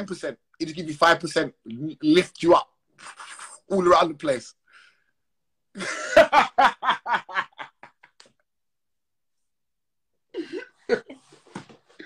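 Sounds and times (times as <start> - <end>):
man laughing: 5.8 - 8.2.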